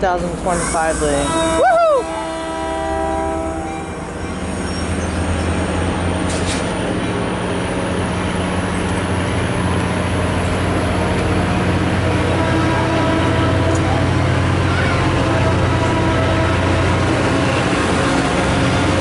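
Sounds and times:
train cars rumbling over rails: 0.0 - 19.0
train horn: 0.8 - 4.0, 11.0 - 19.0.

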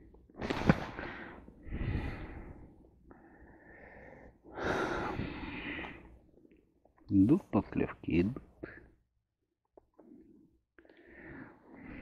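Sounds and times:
man breathing noisily: 0.9 - 6.2, 10.0 - 12.0.

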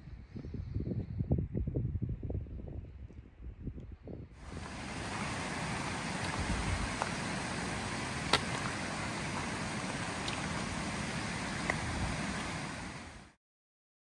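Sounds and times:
wind on microphone: 0.0 - 13.3
footsteps on gravel: 4.4 - 12.9.

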